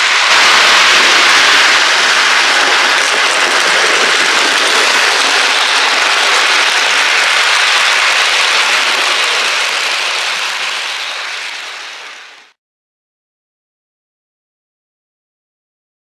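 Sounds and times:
model train wheels on track: 0.0s - 12.6s.

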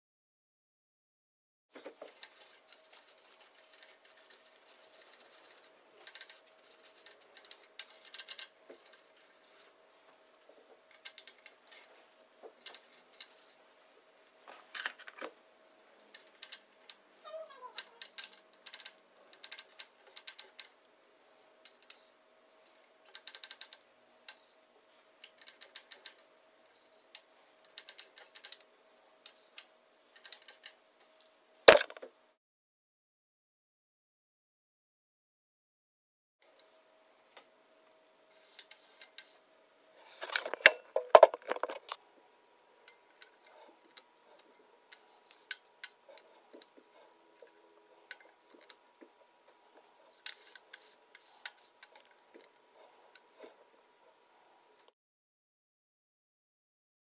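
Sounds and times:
faint steady hum: 1.8s - 32.4s, 36.4s - 55.0s
cotton swab scratching metal: 2.0s - 9.8s.

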